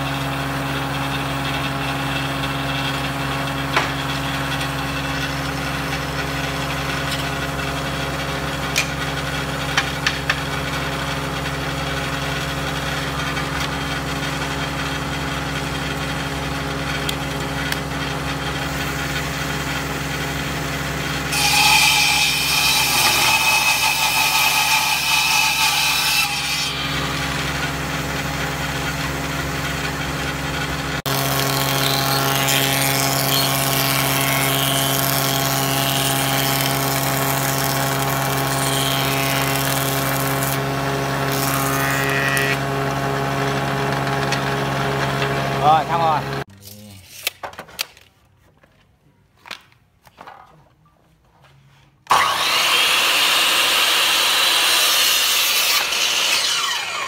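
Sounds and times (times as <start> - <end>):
table saw motor hum: 0.0 - 47.0, 52.1 - 57.0
saw blade cutting wood: 0.0 - 47.4, 52.1 - 57.0.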